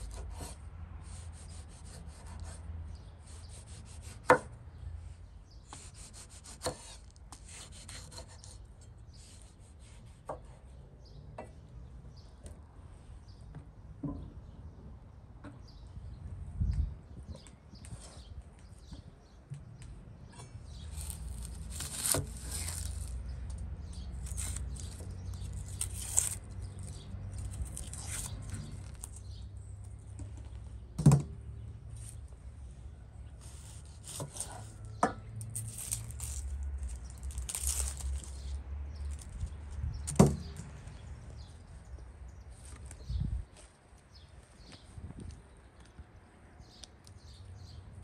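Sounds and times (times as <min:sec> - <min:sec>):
onion skins rustling: 0:20.7 - 0:29.4, 0:33.4 - 0:39.5.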